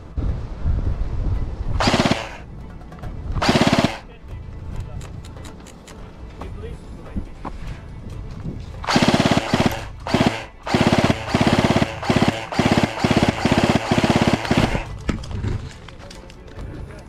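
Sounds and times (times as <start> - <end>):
airsoft gun rattling bursts: 1.8 - 2.4, 3.4 - 4.1, 8.8 - 15.8.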